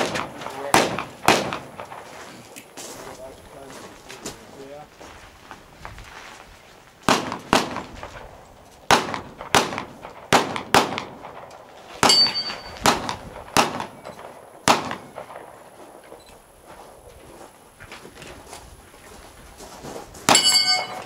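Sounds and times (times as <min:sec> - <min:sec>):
gunshots: 0:00.0 - 0:02.5, 0:07.0 - 0:15.8
steel target ringing: 0:12.0 - 0:12.8, 0:20.3 - 0:21.0.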